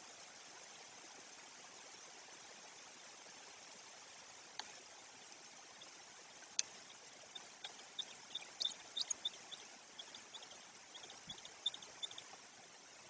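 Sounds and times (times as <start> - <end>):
steady rain hissing: 0.0 - 13.0
drops ticking: 5.7 - 12.4.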